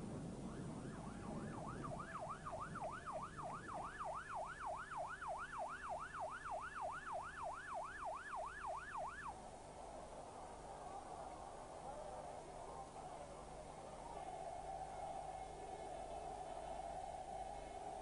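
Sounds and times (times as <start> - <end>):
vehicle siren fast yelp: 0.4 - 9.4.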